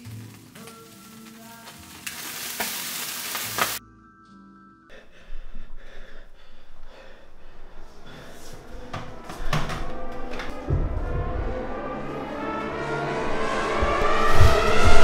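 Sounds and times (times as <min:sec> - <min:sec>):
soft sustained music tones: 0:00.0 - 0:02.2, 0:03.8 - 0:15.0
loud hiss: 0:00.0 - 0:03.8.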